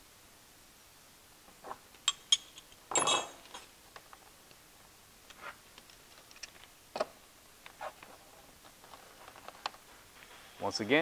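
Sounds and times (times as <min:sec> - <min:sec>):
faint clicks of parts handled: 0:01.6 - 0:04.6, 0:05.2 - 0:10.4
metal wrenches clinking: 0:02.0 - 0:03.7.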